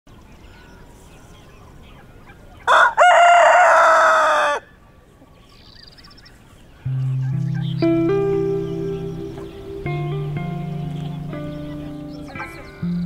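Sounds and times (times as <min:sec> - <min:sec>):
rooster crowing: 0:02.7 - 0:04.7.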